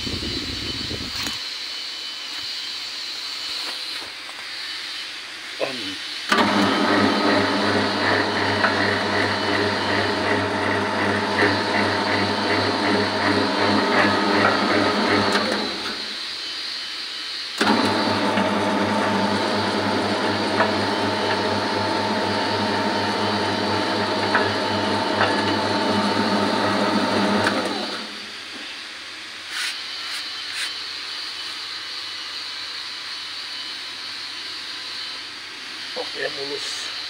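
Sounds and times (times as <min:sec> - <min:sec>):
mixer motor humming: 0:06.3 - 0:16.3, 0:17.6 - 0:28.6.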